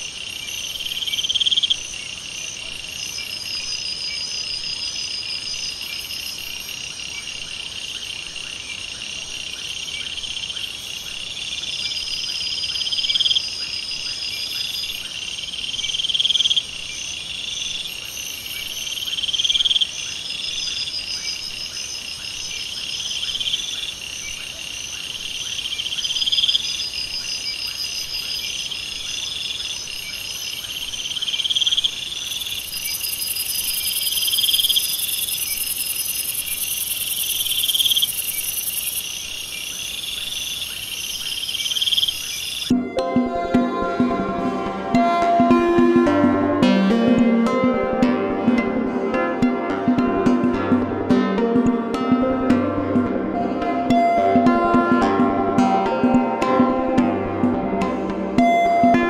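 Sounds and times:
insects calling shrilly: 0.0 - 7.4, 9.6 - 42.7.

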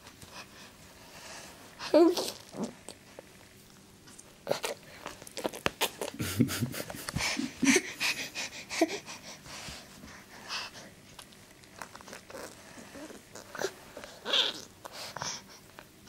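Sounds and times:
toddler mouth sounds: 2.0 - 3.0
toddler breathing: 7.1 - 11.0, 12.6 - 15.7.

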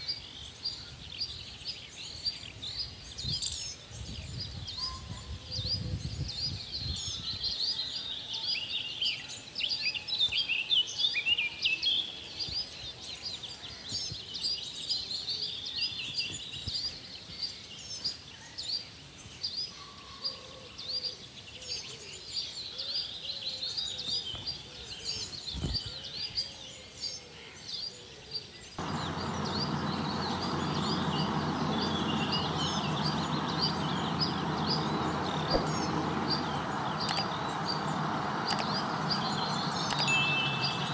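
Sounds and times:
small birds chirping: 0.0 - 40.9
thin high tone: 38.4 - 40.9.

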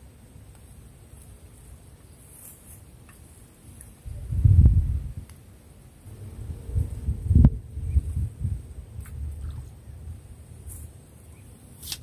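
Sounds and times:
wind rumble on microphone: 4.0 - 5.4, 6.0 - 11.3.

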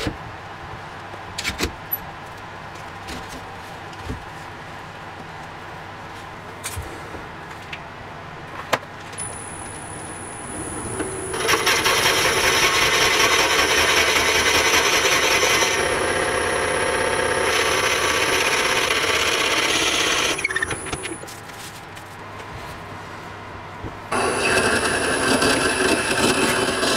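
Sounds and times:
thin high whine: 9.2 - 13.6
lathe tool cutting and scraping: 9.2 - 21.2, 24.1 - 26.9.

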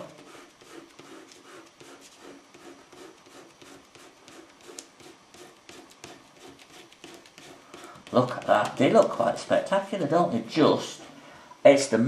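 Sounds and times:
fingertip rubbing paper: 0.0 - 9.1.

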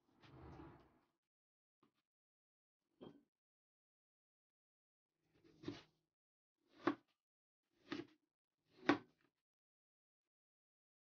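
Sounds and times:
cleaver chopping on plastic board: 6.7 - 7.1, 7.8 - 9.2.

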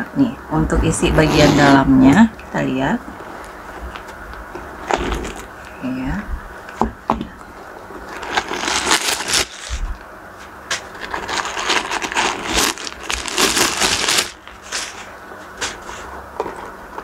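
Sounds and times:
plastic packing crackling: 8.0 - 10.0, 10.7 - 15.1.

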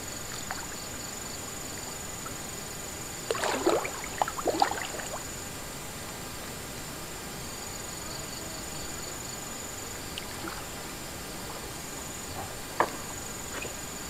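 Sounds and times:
water splashing: 3.3 - 5.2, 12.3 - 14.0.

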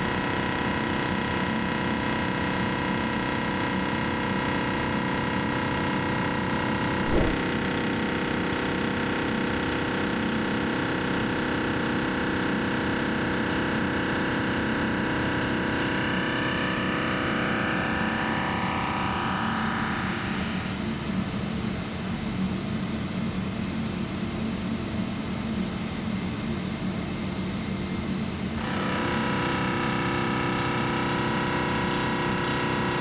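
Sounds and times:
single knock: 7.0 - 7.5.

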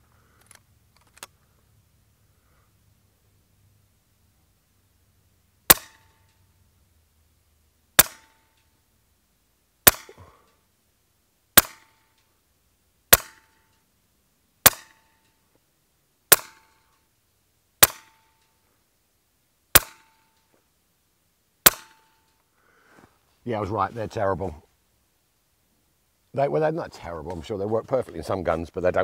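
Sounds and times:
air rifle shots: 5.7 - 6.2, 8.0 - 8.4, 9.8 - 10.4, 11.6 - 12.0, 13.1 - 13.6, 14.6 - 15.2, 16.3 - 16.8, 17.8 - 18.3, 19.7 - 20.2, 21.6 - 22.2.

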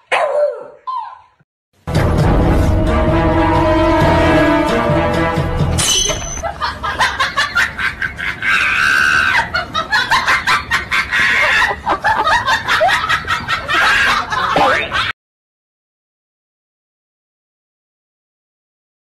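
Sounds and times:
person laughing hard: 6.4 - 15.1.

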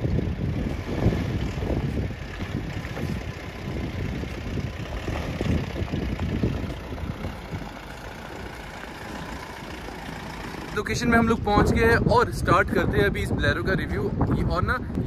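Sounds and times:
tyres rumbling over rocks: 0.0 - 12.1
suv engine running at low revs: 0.0 - 15.0.

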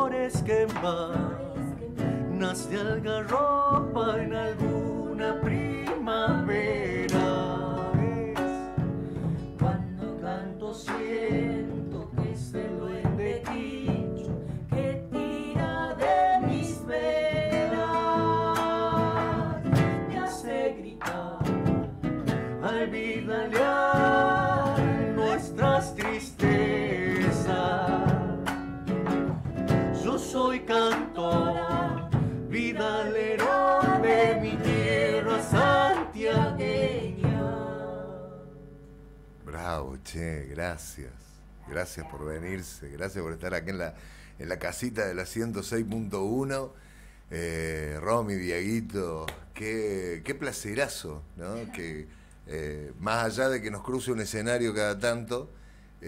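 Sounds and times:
woman singing: 0.0 - 28.6, 30.0 - 38.5
acoustic guitar strumming: 0.0 - 39.2.

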